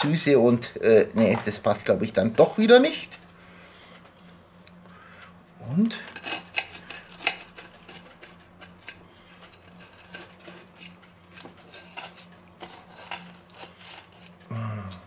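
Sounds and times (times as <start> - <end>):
cutlery scraping a ceramic plate: 5.9 - 14.4.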